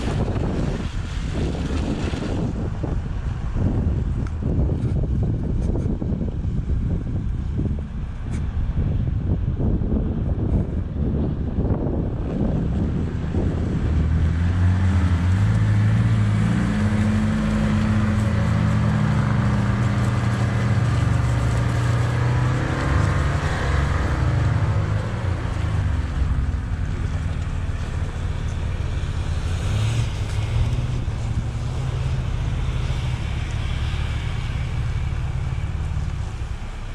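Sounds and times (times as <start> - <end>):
tyre and wind noise: 0.0 - 36.9
off-road vehicle engine revving: 12.4 - 36.9.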